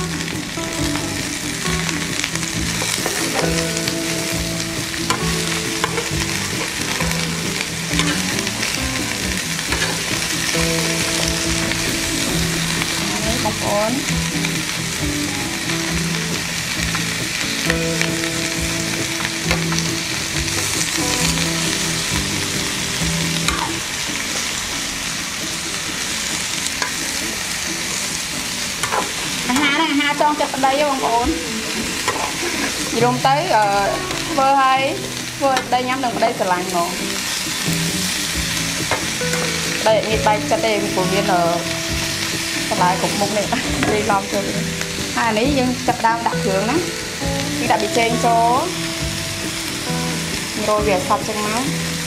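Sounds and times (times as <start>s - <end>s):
vegetables sizzling in a frying pan: 0.0s - 52.0s
metal spatula scraping a pan: 2.8s - 13.3s, 28.8s - 30.3s, 31.3s - 33.2s.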